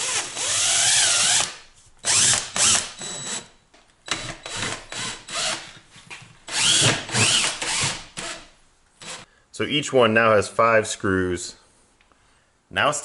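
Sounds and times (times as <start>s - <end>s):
cordless drill driving screws: 0.0s - 3.5s, 4.1s - 5.7s, 6.5s - 9.2s.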